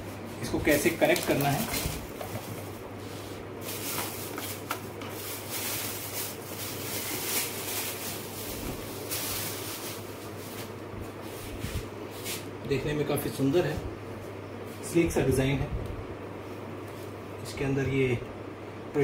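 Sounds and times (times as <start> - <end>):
plastic bag crinkling: 0.7 - 2.8, 3.6 - 10.8.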